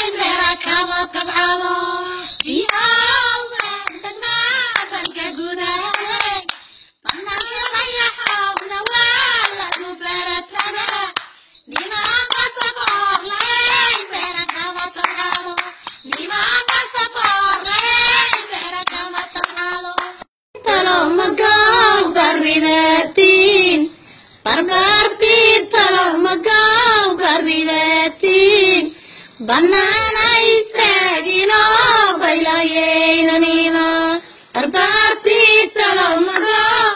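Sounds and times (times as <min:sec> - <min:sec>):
rhythmic hand-clapping: 0:00.0 - 0:01.6, 0:02.4 - 0:22.6, 0:34.8 - 0:36.9
singing in repeated phrases: 0:00.0 - 0:36.9.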